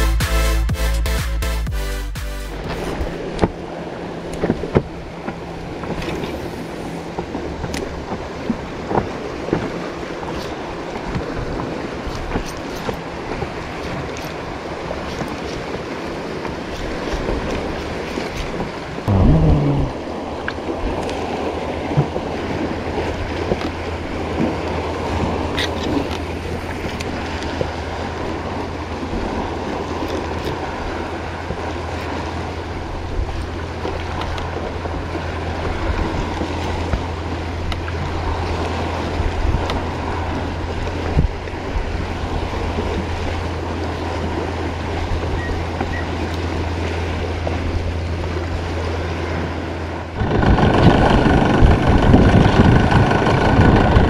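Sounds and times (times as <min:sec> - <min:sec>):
water lapping against kayak hull: 0:02.6 - 0:54.0
wind noise: 0:19.0 - 0:23.7, 0:50.2 - 0:54.0
steady low hum: 0:19.1 - 0:29.5.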